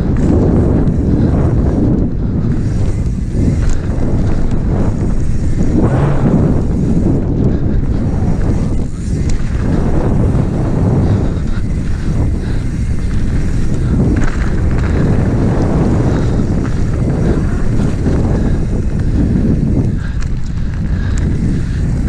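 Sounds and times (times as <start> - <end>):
bike tyres rumbling on dirt: 0.0 - 22.0
wind buffeting microphone: 0.0 - 22.0.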